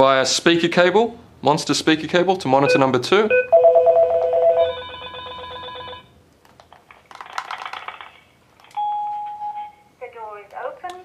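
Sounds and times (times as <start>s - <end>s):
steady beep: 2.7s - 5.0s.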